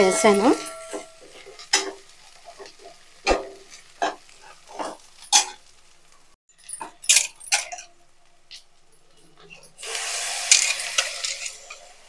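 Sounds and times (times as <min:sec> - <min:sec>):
metal spatula scraping a pan: 0:00.0 - 0:05.7, 0:09.4 - 0:12.0
light sizzle: 0:00.0 - 0:12.0.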